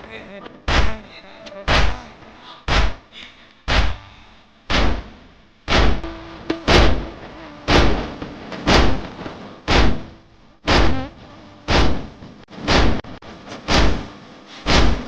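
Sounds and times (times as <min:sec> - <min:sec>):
people beating chests in unison: 0:00.7 - 0:01.0, 0:01.7 - 0:02.1, 0:02.7 - 0:03.1, 0:03.7 - 0:04.1, 0:04.7 - 0:13.1.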